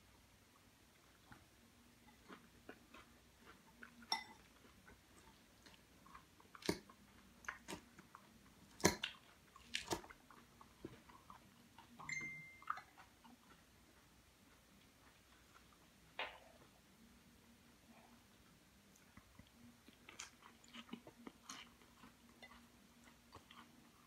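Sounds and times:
chewing and crunching leaves: 1.2s - 15.9s, 18.9s - 24.0s.

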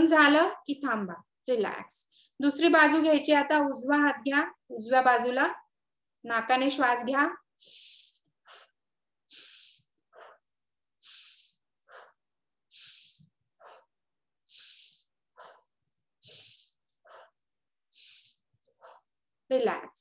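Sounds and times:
woman breathing rhythmically: 2.1s - 2.4s, 7.4s - 19.3s.

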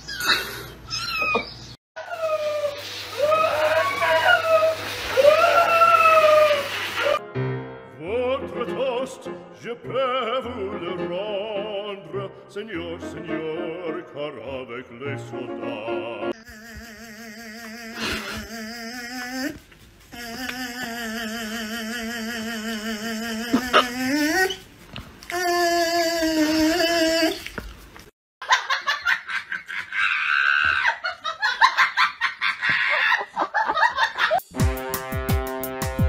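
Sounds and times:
operatic voice singing: 7.9s - 19.6s, 20.2s - 24.6s.

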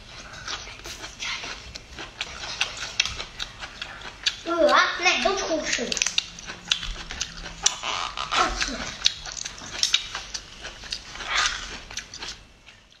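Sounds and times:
bamboo husk crackling and tearing: 7.6s - 10.0s.

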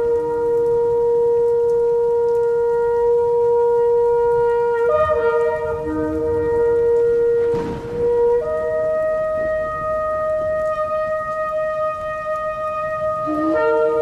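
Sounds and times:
second wavering horn tone: 2.5s - 14.0s
shofar held blast: 2.6s - 14.0s.

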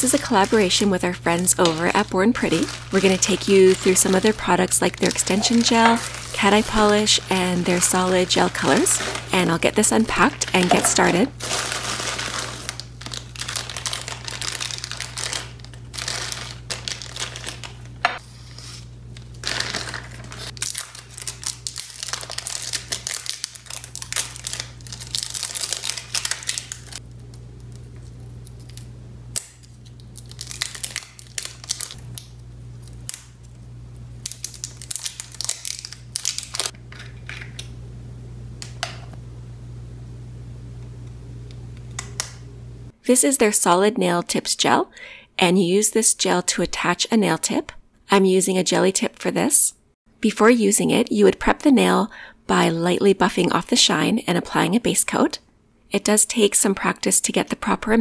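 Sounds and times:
plastic bags crinkling: 0.0s - 18.0s, 18.6s - 27.0s, 29.6s - 33.4s, 34.2s - 37.3s
steady low hum: 0.0s - 43.1s.

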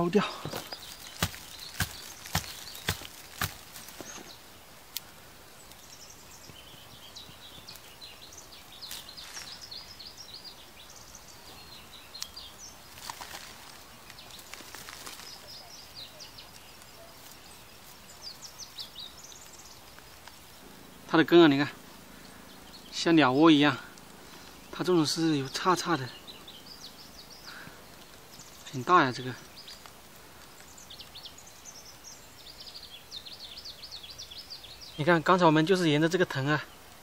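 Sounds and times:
small birds chirping: 0.0s - 37.0s
faint rustling: 0.2s - 7.9s, 12.4s - 21.1s
knock of soil off roots: 0.5s - 4.4s.

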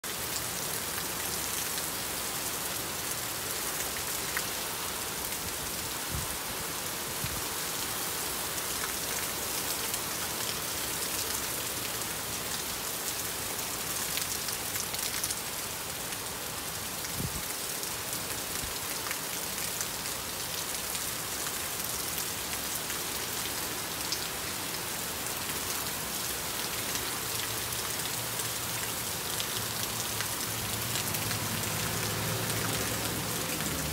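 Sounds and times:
heavy rain on asphalt: 0.0s - 33.9s.

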